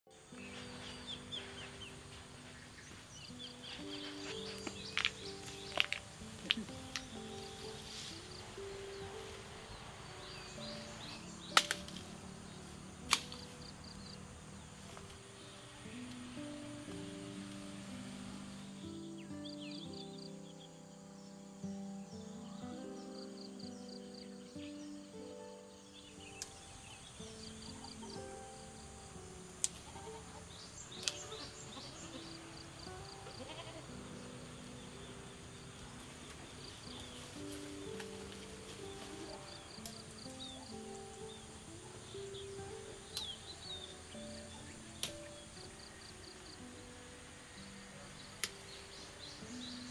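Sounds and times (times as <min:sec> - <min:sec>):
insect chirps: 0:00.1 - 0:49.9
soft background music: 0:00.1 - 0:49.9
leaf stems snapping: 0:03.7 - 0:09.4, 0:10.5 - 0:14.2, 0:26.3 - 0:27.4, 0:29.3 - 0:30.1, 0:30.8 - 0:32.0, 0:35.7 - 0:40.9, 0:42.2 - 0:43.4, 0:44.1 - 0:45.7, 0:48.2 - 0:49.2
woody stem cracking: 0:11.5 - 0:12.2, 0:13.0 - 0:13.6
faint animal bleat: 0:29.8 - 0:30.4, 0:33.2 - 0:34.0.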